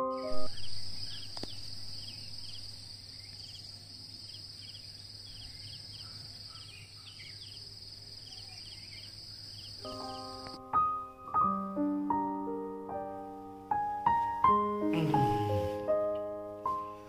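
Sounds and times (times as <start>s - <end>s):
insects droning: 0.0s - 11.6s.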